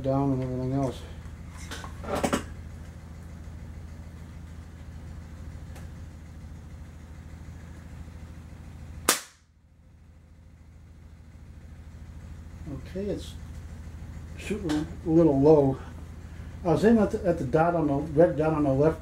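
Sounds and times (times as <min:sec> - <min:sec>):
steady low hum: 0:00.0 - 0:19.0
air rifle shot: 0:09.1 - 0:09.4.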